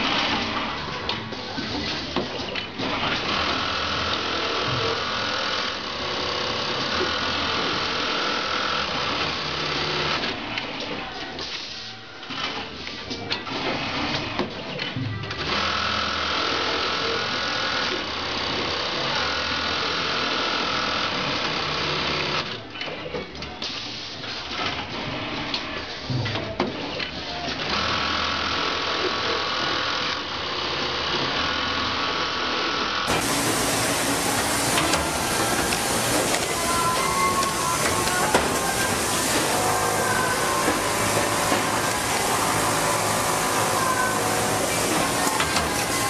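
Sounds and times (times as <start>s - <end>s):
industrial sewing machine: 0.0s - 23.0s, 26.9s - 46.0s
sewing machine motor whining: 33.1s - 46.0s.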